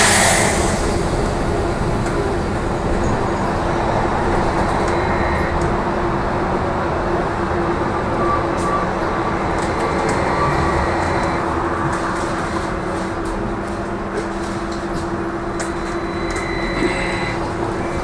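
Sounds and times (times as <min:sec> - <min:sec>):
higher whine: 0:00.0 - 0:05.8
tyre and road noise: 0:00.0 - 0:18.0.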